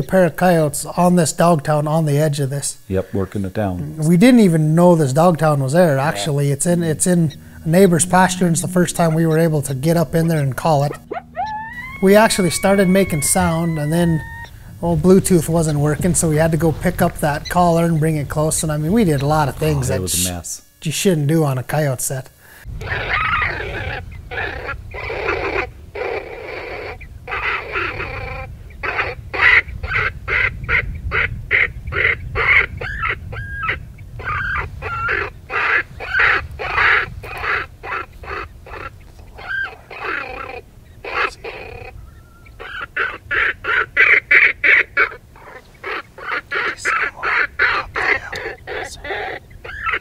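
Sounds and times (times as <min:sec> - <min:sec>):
electronic animal distress cries: 0:03.9 - 0:16.8, 0:32.8 - 0:50.0.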